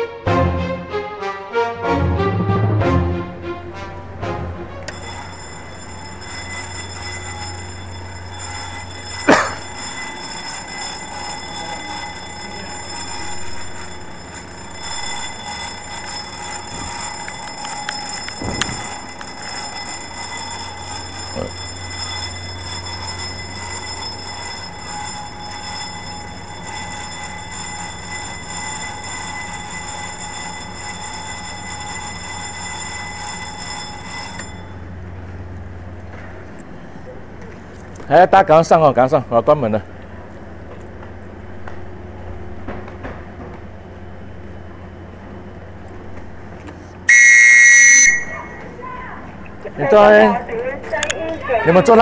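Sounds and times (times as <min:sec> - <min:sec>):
departure bell ringing: 0:03.3 - 0:40.6, 0:47.1 - 0:52.0.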